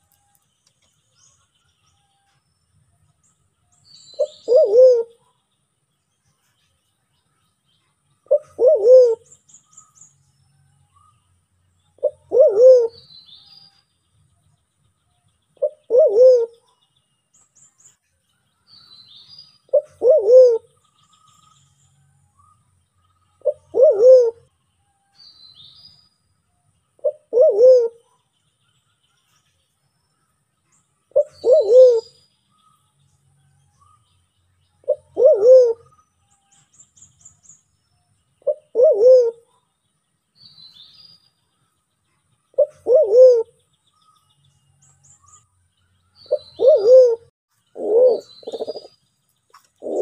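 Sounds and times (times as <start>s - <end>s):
small birds chirping: 0.0s - 50.0s
dove cooing: 4.2s - 5.2s, 8.3s - 9.3s, 12.0s - 13.1s, 15.6s - 16.6s, 19.7s - 20.7s, 23.4s - 24.5s, 27.0s - 28.1s, 31.1s - 32.2s, 34.8s - 35.9s, 38.4s - 39.5s, 42.6s - 43.6s, 46.3s - 48.9s, 49.8s - 50.0s.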